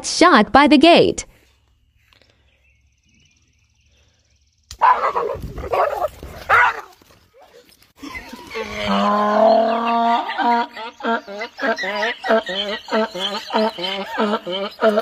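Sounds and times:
donkey braying: 4.8 - 15.0.

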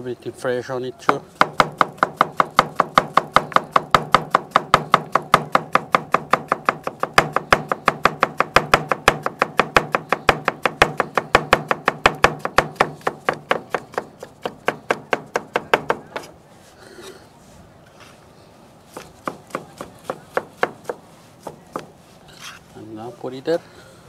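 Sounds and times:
knife chopping on plastic board: 1.1 - 16.3, 19.0 - 21.9.

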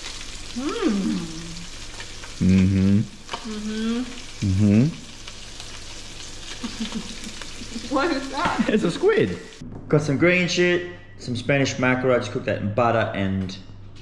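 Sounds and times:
fish sizzling in a frying pan: 0.0 - 9.6
woman making wordless voice sounds: 0.6 - 1.6, 3.5 - 4.2.

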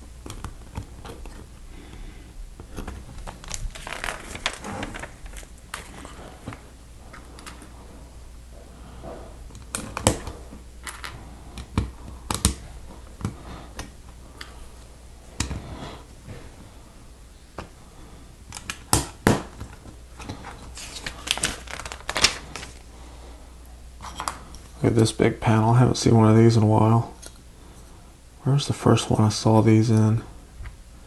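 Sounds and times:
plastic pieces snapping into place: 9.5 - 12.6.

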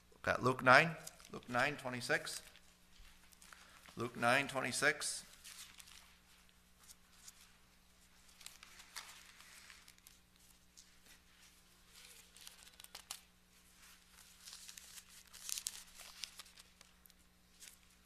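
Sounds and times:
thin pages turning: 5.3 - 18.0.

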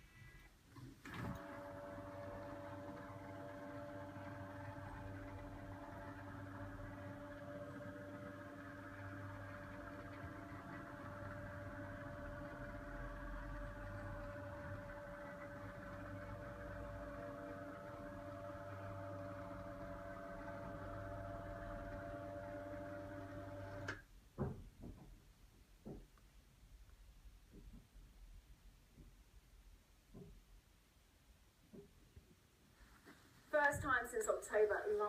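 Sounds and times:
electric motor humming: 1.4 - 23.9.

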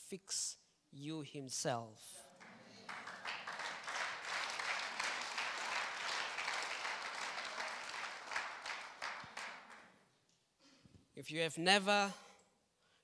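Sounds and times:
crowd applauding: 2.3 - 10.0.

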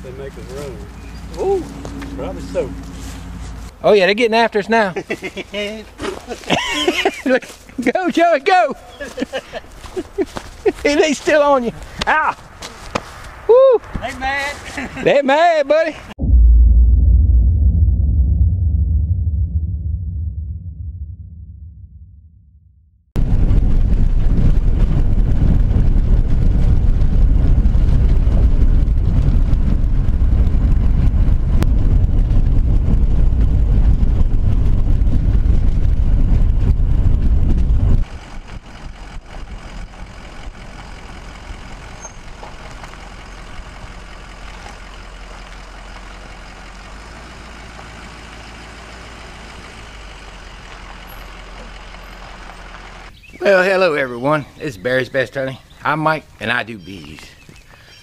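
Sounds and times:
truck road and engine rumble: 0.0 - 16.2, 23.2 - 57.8
truck engine idling: 38.0 - 53.3.

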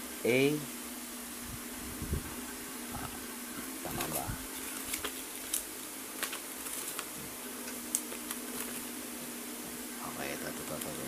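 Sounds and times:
steady low hum: 0.0 - 11.0
paper rustling and crackling: 3.8 - 9.0, 10.4 - 11.0.

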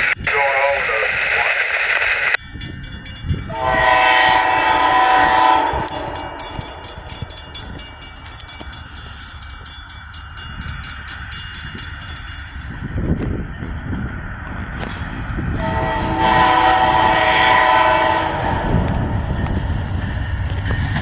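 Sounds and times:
train rumble: 0.0 - 21.0
train air horn blast: 3.5 - 7.0, 15.6 - 19.1.

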